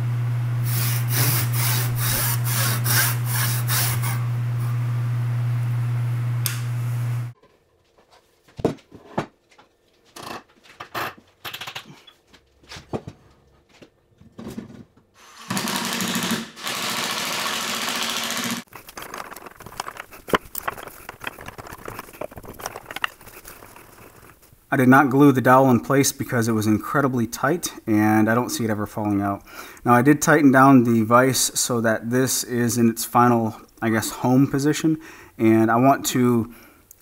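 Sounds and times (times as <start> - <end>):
backsaw cutting wood: 0.7 - 4.3, 15.2 - 18.7
wood parts tapping and knocking: 18.7 - 24.5.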